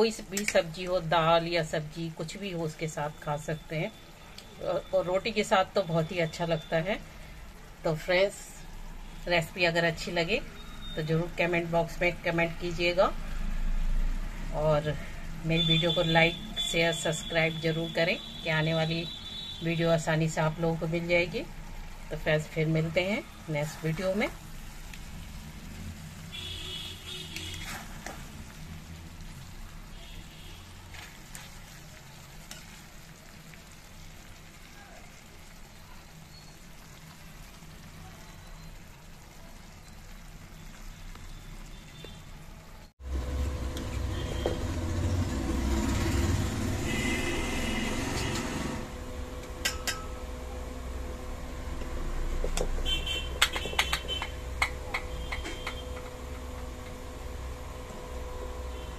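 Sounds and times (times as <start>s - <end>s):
metal spatula scraping steel pan: 27.3s - 28.2s.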